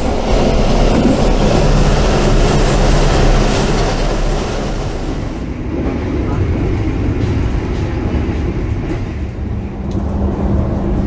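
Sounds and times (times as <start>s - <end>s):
low hum: 0.0s - 6.3s
train rumbling on rails: 0.0s - 11.0s.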